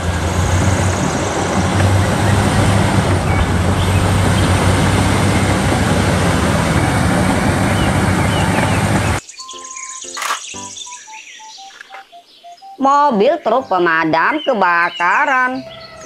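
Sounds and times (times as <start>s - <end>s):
bulldozer diesel engine running: 0.0s - 9.2s.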